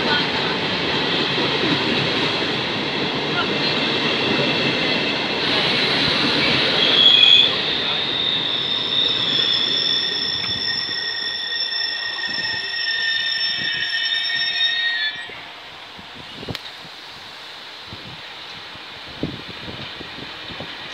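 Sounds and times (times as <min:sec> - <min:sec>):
train wheels squealing: 0:03.6 - 0:16.5.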